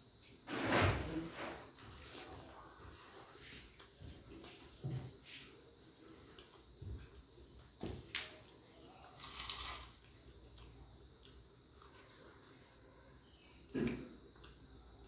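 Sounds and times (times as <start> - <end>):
cricket trilling: 0.0 - 15.0
snack breaking on paper plate: 9.2 - 10.0
person chewing: 9.2 - 12.6.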